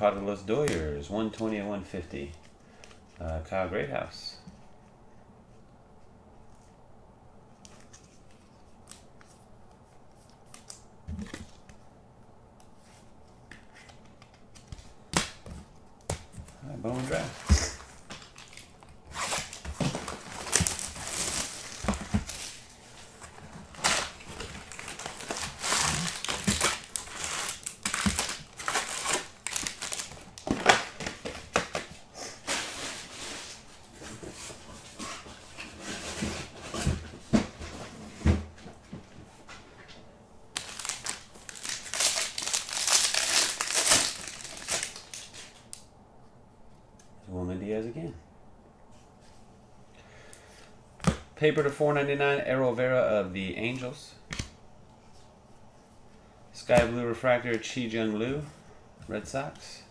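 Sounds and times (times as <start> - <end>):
plastic wrappers crinkling and tearing: 16.5 - 31.9, 40.5 - 45.8.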